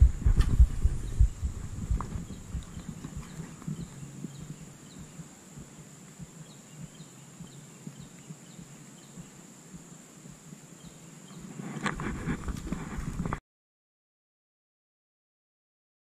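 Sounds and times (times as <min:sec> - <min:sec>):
faint low rumble: 0:00.0 - 0:13.4
high-pitched insect drone: 0:01.0 - 0:11.6.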